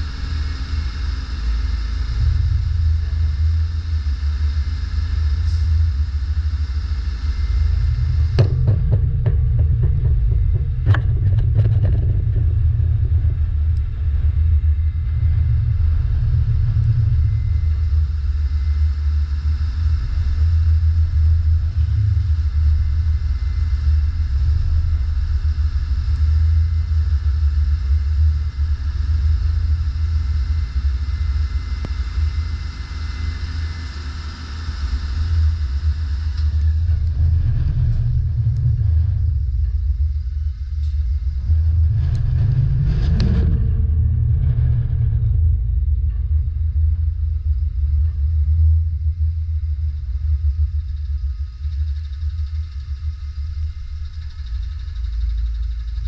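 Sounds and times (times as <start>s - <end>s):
knocks: 8.3s - 13.4s.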